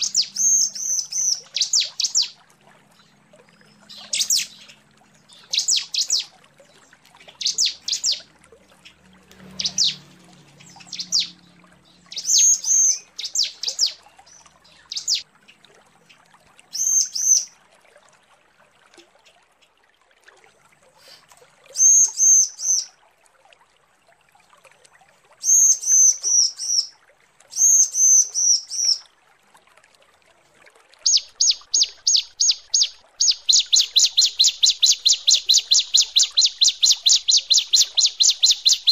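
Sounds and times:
bird calling high notes: 0:31.1 - 0:38.9.

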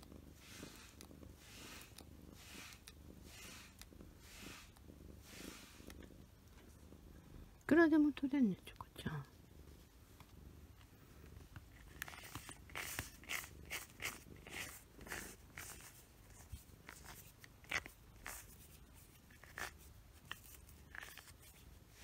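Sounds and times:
scratchy rustles of fur pulling: 0:11.3 - 0:22.0.

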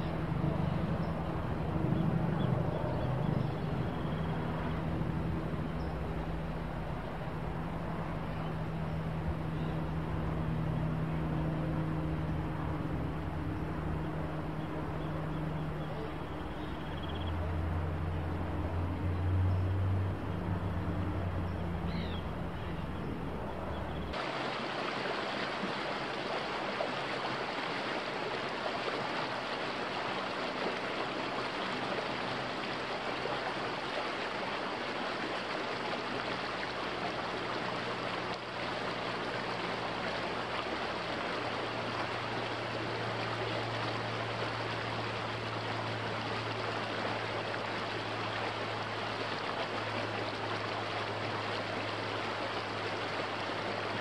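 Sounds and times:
creek rushing over rocks: 0:19.8 - 0:54.0.

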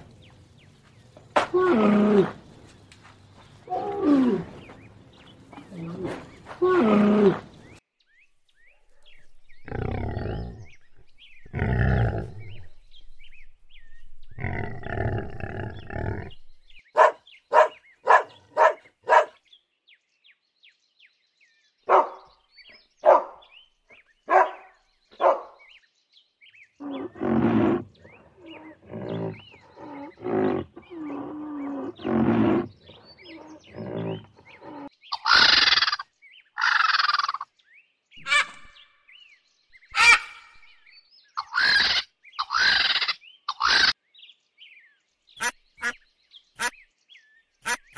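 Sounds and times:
camel groans: 0:03.7 - 0:04.6, 0:05.6 - 0:07.6, 0:26.8 - 0:34.9
dog barking: 0:17.0 - 0:19.4, 0:21.9 - 0:22.3, 0:23.0 - 0:23.4, 0:24.3 - 0:25.6
low animal calls: 0:26.8 - 0:36.0.

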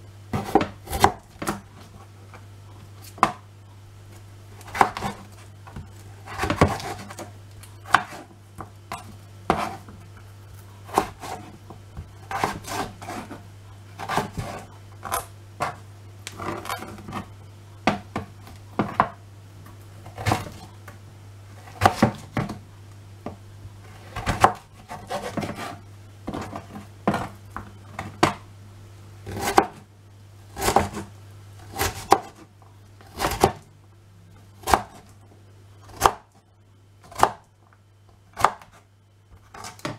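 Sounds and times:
knife chopping on cutting board: 0:00.3 - 0:01.7, 0:04.6 - 0:10.0, 0:10.9 - 0:13.4, 0:14.0 - 0:15.8, 0:21.6 - 0:22.6, 0:24.0 - 0:27.4, 0:29.2 - 0:29.8, 0:30.5 - 0:31.1, 0:31.7 - 0:32.4, 0:33.0 - 0:33.6, 0:34.6 - 0:35.1, 0:35.9 - 0:36.3, 0:37.0 - 0:37.5, 0:38.3 - 0:38.8.

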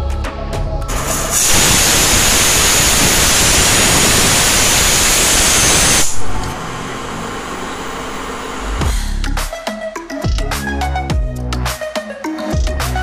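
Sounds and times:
pressure cooker steam hissing: 0:00.9 - 0:06.2.

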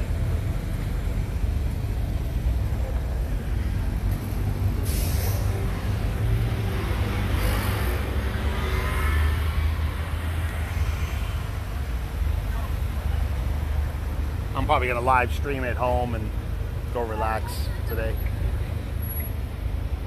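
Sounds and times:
traffic engines rumbling: 0:00.0 - 0:20.0
short hisses: 0:04.8 - 0:05.5.

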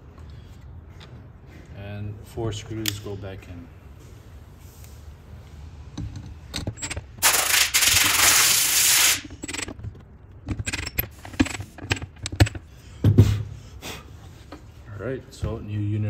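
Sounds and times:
tool and screw clicks and knocks: 0:06.0 - 0:08.1, 0:09.2 - 0:12.7.

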